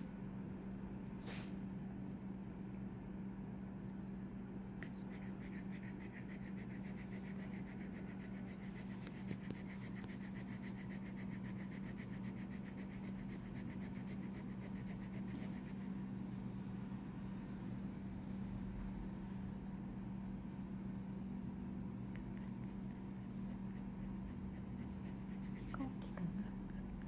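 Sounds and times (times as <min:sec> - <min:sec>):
steady low hum: 0:00.0 - 0:27.0
dog panting: 0:04.8 - 0:16.5, 0:22.1 - 0:27.0.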